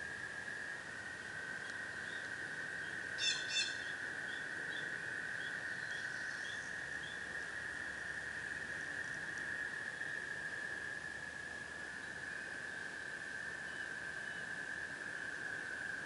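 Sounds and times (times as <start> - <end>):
tree frogs chorus: 0.0 - 16.0
bird calling: 3.2 - 7.2.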